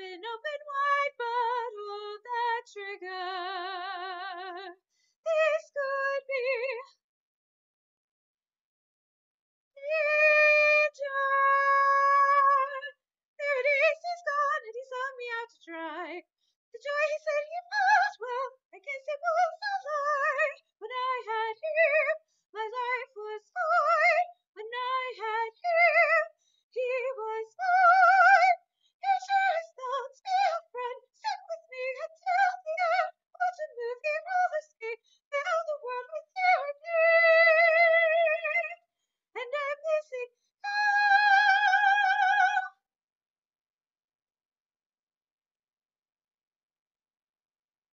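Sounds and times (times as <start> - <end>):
woman singing: 0.0 - 7.0, 9.8 - 16.2, 16.8 - 38.8, 39.4 - 42.8.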